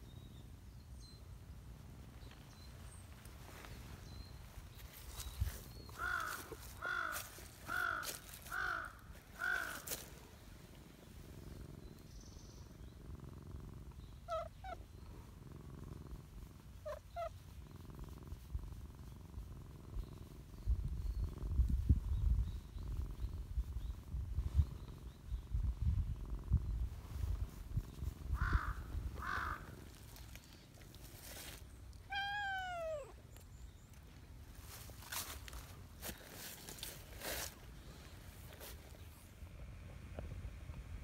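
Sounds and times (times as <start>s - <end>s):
crow cawing: 6.0s - 9.9s, 28.4s - 29.6s
cat purring: 9.8s - 31.6s.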